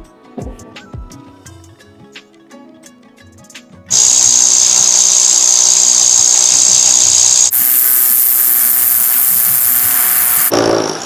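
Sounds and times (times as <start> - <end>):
power drill boring through wall: 3.9 - 11.0.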